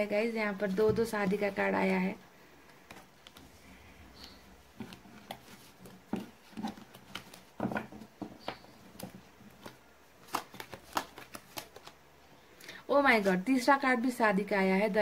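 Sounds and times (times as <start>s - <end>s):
cards tapping and rustling: 0.6s - 2.0s, 4.2s - 12.0s.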